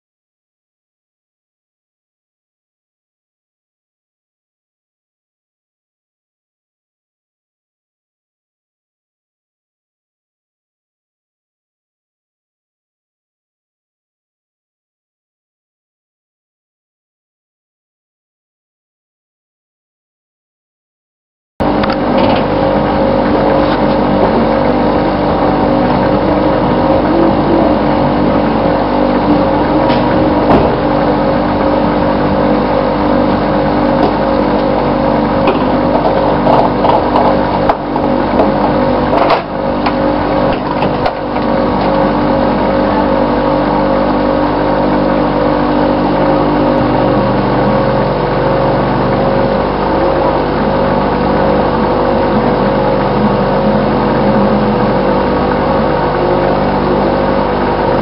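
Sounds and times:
fuel pump humming: 0:21.6 - 0:58.0.

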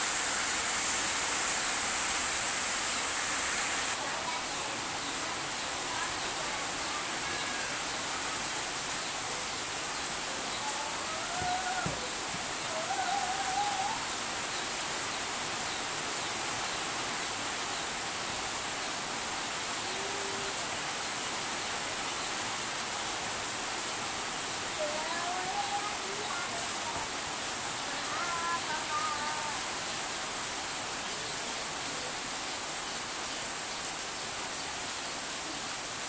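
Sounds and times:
steady rain falling: 0:00.0 - 0:36.0
faint wavering calls or voices: 0:10.2 - 0:14.2, 0:19.8 - 0:20.6, 0:24.8 - 0:27.2, 0:27.8 - 0:29.7.

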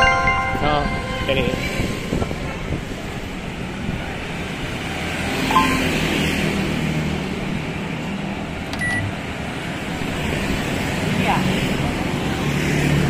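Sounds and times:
motorbikes and cars passing: 0:00.0 - 0:13.0
short beeps: 0:05.5 - 0:05.9, 0:08.8 - 0:09.1.

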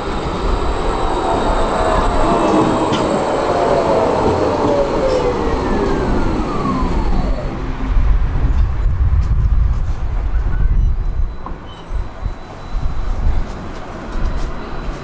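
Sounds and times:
tram motor whine: 0:00.0 - 0:10.4
low rumble: 0:00.0 - 0:11.4.

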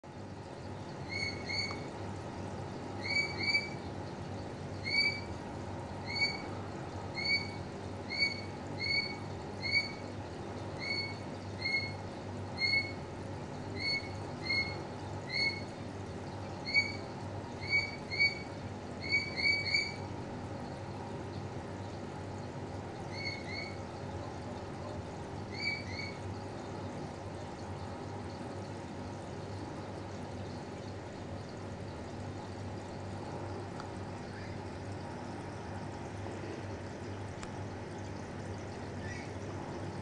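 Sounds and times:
steady low hum: 0:00.0 - 0:40.0
high-pitched animal chirps: 0:03.0 - 0:03.8, 0:06.0 - 0:06.5, 0:07.1 - 0:10.0, 0:10.8 - 0:12.0, 0:12.6 - 0:13.0, 0:17.6 - 0:20.0.

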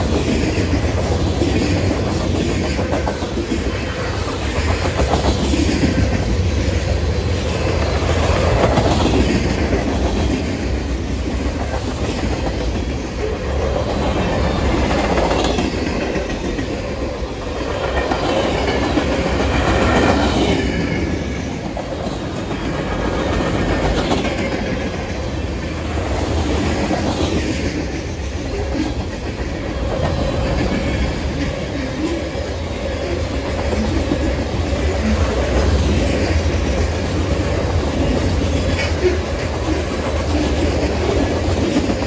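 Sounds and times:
freight train rumble: 0:00.0 - 0:42.0.

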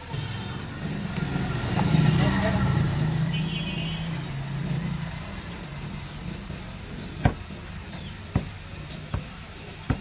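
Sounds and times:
rolling pin knocking on board: 0:08.3 - 0:10.0.

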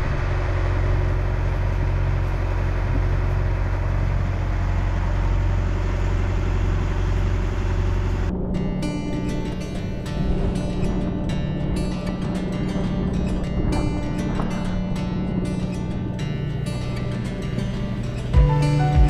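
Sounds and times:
boat engine droning: 0:00.0 - 0:19.0
acoustic guitar music: 0:08.4 - 0:19.0.

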